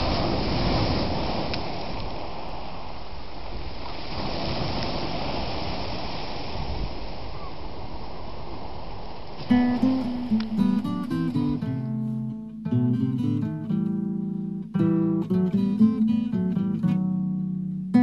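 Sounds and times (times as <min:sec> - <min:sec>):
waves rushing: 0:00.0 - 0:12.2
wind: 0:00.0 - 0:18.0.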